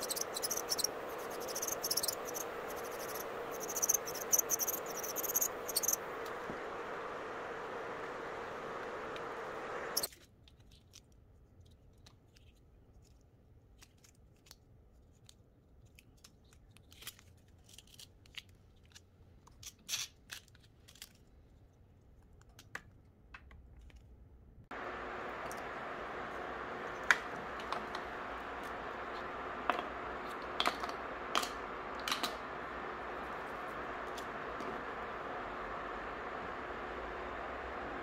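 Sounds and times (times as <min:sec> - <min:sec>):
electric whir: 0:00.0 - 0:10.1, 0:24.7 - 0:38.0.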